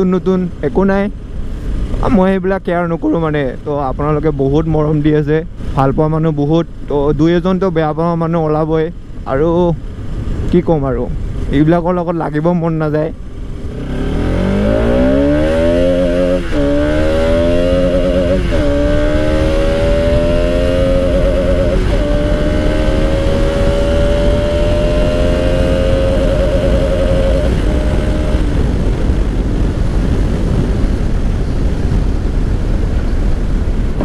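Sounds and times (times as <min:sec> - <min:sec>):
steady rush: 0:09.1 - 0:34.0
motorcycle engine accelerating: 0:13.2 - 0:34.0.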